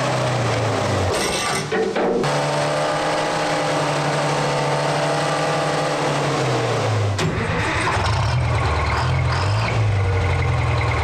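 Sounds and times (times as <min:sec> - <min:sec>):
engine running: 0:02.2 - 0:11.0.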